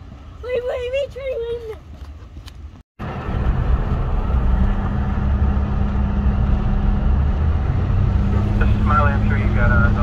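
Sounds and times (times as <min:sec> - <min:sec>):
low hum: 0:03.0 - 0:10.0.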